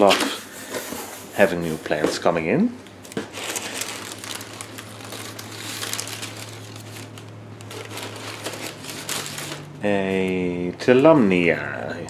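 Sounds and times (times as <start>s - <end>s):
tissue paper rustling and crinkling: 3.2s - 9.7s.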